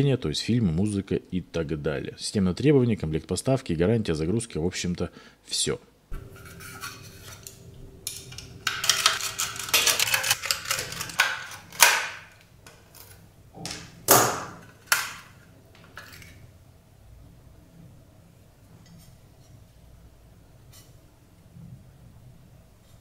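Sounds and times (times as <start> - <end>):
screwdriver and screws clicking: 7.4 - 12.1
loud clacks of parts: 8.1 - 15.4.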